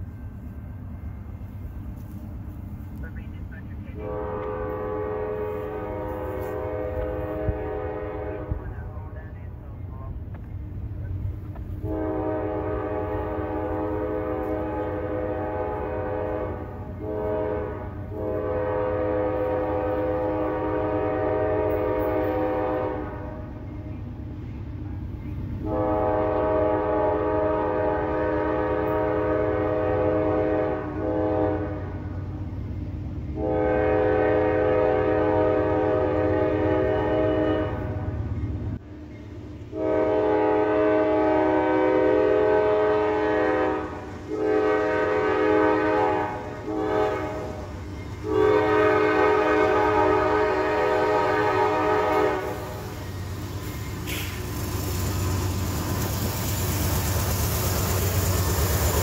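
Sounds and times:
low train rumble: 0.0s - 59.0s
locomotive air horn blasts: 3.8s - 9.2s, 11.7s - 23.7s, 25.6s - 32.2s, 33.3s - 38.2s, 39.7s - 54.4s.

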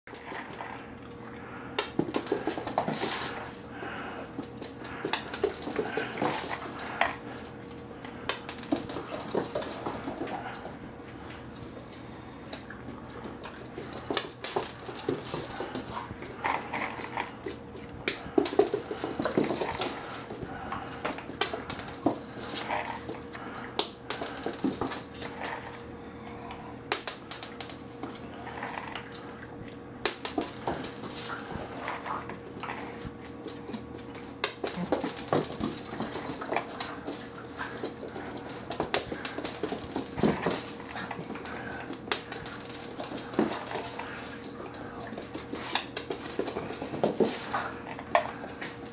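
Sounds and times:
dog claws clicking on wooden floor: 0.1s - 10.8s, 30.0s - 48.9s.

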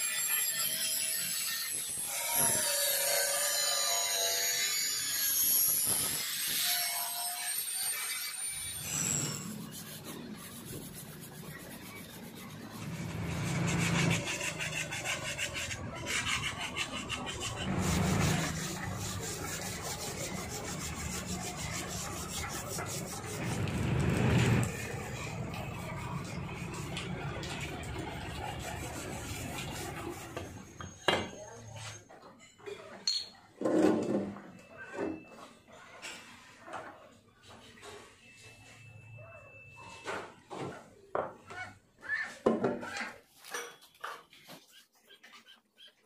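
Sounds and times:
angle grinder whining on metal: 0.0s - 11.4s, 12.3s - 30.8s
hand scrubbing metal bodywork: 5.8s - 30.8s.

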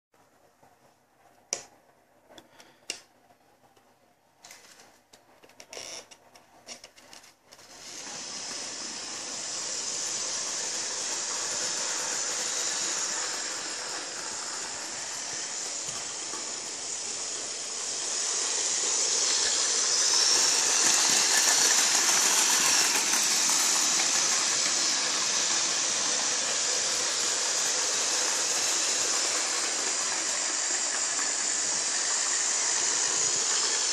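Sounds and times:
model train running on track: 7.6s - 33.9s.

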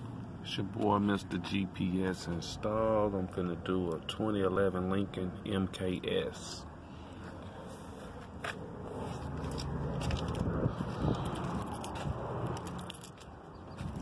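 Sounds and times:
phone handling rustling and scraping: 8.0s - 13.3s.

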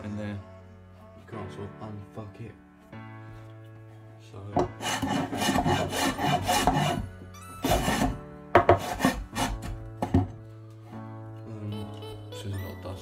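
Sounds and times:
sandpaper rubbing on wood: 4.8s - 7.0s, 8.8s - 9.6s.

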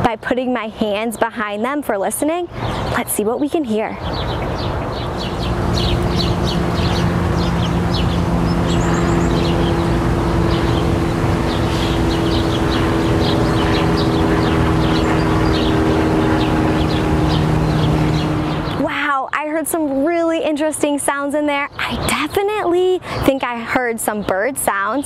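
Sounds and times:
small birds chirping: 0.5s - 19.0s
airplane drone: 3.8s - 19.8s.

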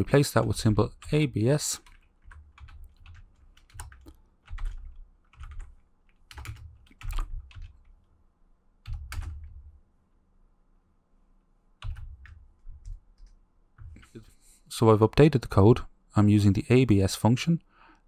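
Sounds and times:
keyboard typing: 0.4s - 8.0s, 8.8s - 9.7s, 11.8s - 14.3s.

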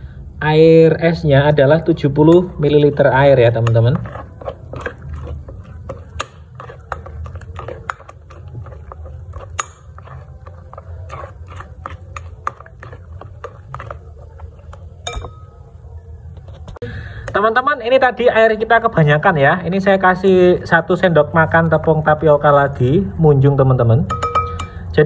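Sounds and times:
wet dough squelching: 1.4s - 16.6s, 17.3s - 24.7s.

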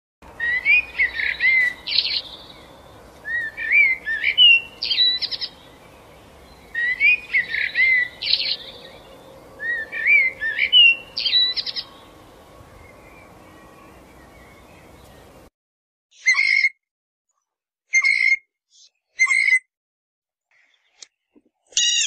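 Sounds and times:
songbird singing: 0.2s - 15.5s, 16.2s - 16.8s, 20.5s - 22.0s.

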